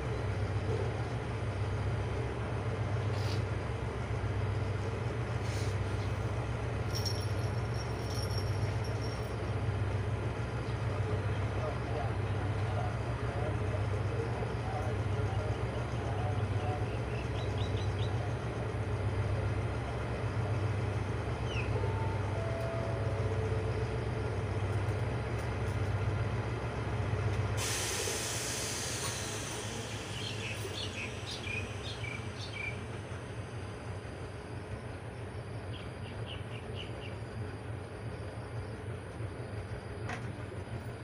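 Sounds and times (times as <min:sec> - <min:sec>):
diesel locomotive idling: 0:00.0 - 0:41.0
loud hiss of air: 0:27.6 - 0:32.0.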